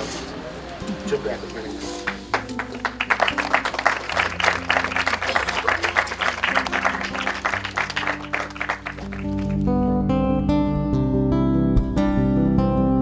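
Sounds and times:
background music with low notes: 0.0 - 13.0
people clapping: 2.0 - 9.7.

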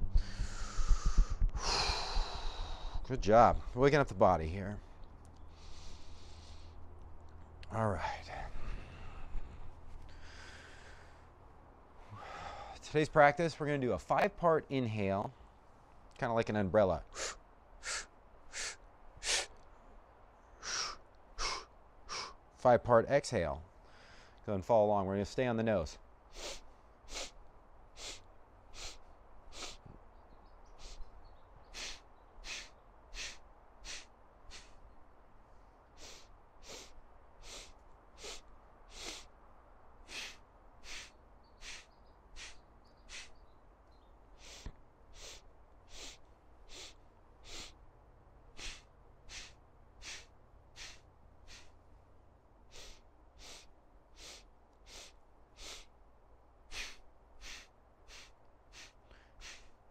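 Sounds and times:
person sniffing breaths through nose: 0.1 - 3.0, 5.5 - 6.8, 17.1 - 19.5, 20.6 - 22.4, 26.3 - 27.4, 28.0 - 29.9, 30.8 - 31.1, 31.7 - 34.8, 35.9 - 39.3, 40.0 - 43.4, 44.4 - 47.8, 48.5 - 51.8, 52.7 - 55.9, 56.7 - 59.9.

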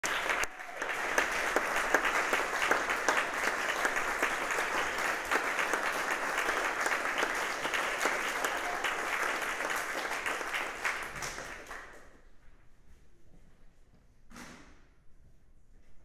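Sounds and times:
audience applauding: 0.0 - 12.0.

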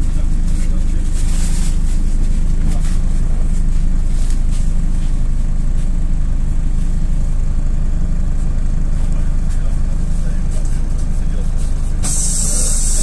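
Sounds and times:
bus engine and road drone: 0.0 - 13.0.

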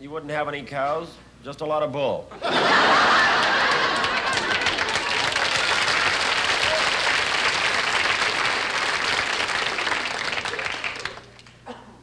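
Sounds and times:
audience applauding: 2.7 - 11.6.

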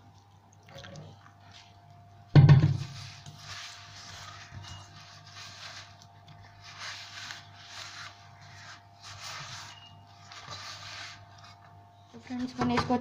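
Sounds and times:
dough kneaded by hand in a bowl: 0.0 - 13.0.

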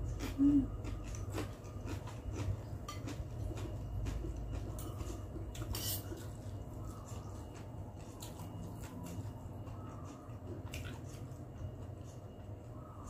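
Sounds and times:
low steady hum: 0.0 - 13.0
fork clinking and scraping glass bowl: 5.6 - 6.2.

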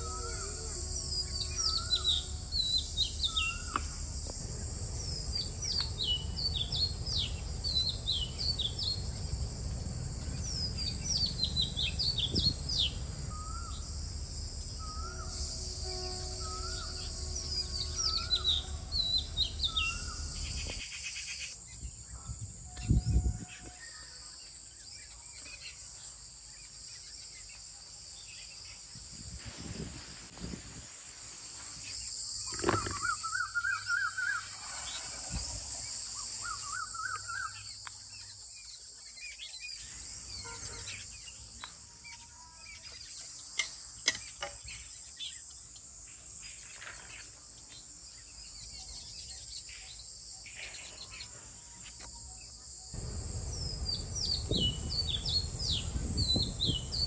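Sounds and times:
high-pitched insect drone: 0.0 - 6.9, 8.8 - 21.5
birds chirping: 0.0 - 21.1, 48.3 - 57.0
warbling bird song: 0.0 - 24.2, 31.9 - 57.0.

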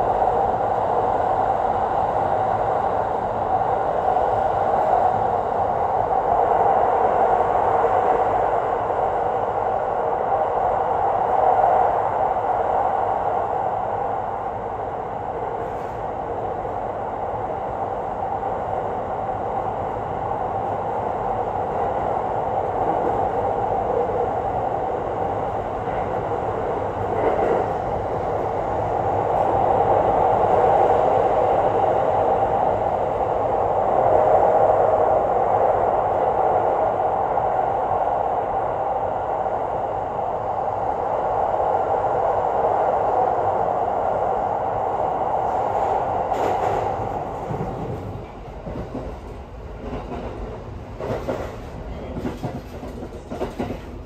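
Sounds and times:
train wheels on rail: 0.0 - 54.0.

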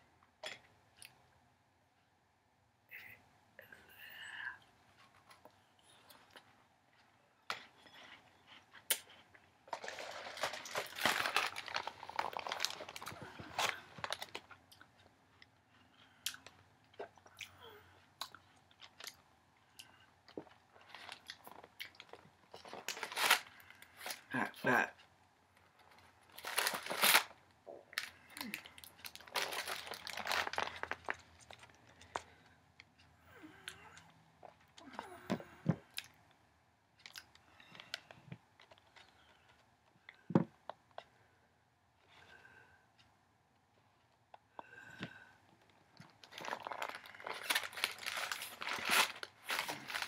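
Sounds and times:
cardboard box rustling: 9.7 - 14.2
cardboard box crinkling: 9.7 - 14.4, 26.3 - 27.3, 29.0 - 31.8, 46.2 - 50.0.

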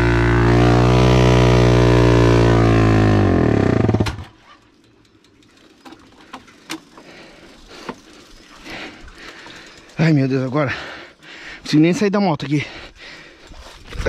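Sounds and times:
motorcycle engine bogging and stalling: 0.0 - 7.1.

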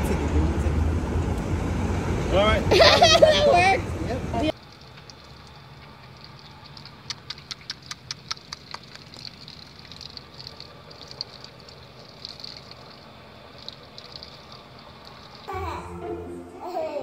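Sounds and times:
water trickling and splashing: 4.4 - 15.6
sharp clicks: 4.7 - 12.6.

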